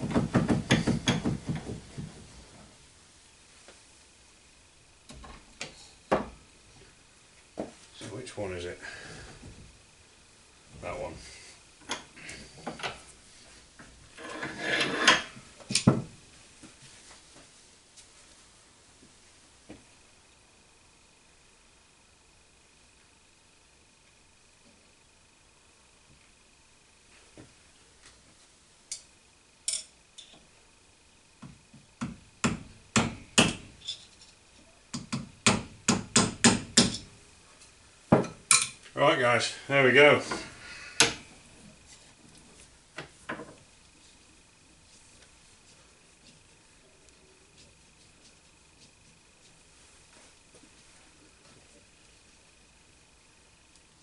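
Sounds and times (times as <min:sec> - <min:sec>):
hammer tapping metal punch: 0:00.0 - 0:01.4
tools knocking on workbench: 0:00.0 - 0:02.1, 0:15.1 - 0:16.1, 0:38.1 - 0:38.4
rustle of handling: 0:16.3 - 0:19.4, 0:41.4 - 0:52.4.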